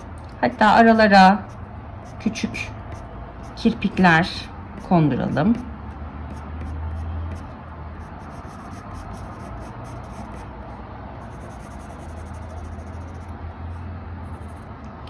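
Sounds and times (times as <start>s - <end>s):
pencil scratching on paper: 0.0s - 10.5s, 11.2s - 14.7s
low steady hum: 0.0s - 15.0s.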